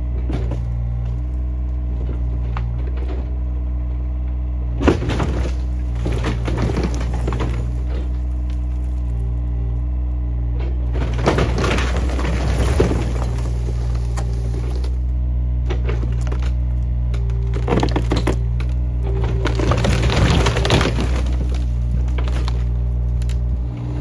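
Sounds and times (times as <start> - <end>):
mini excavator running: 0.0 - 24.0
shingles breaking: 4.8 - 8.9, 11.0 - 14.9, 17.2 - 23.4
wood cracking and splintering: 4.8 - 10.0, 10.6 - 24.0.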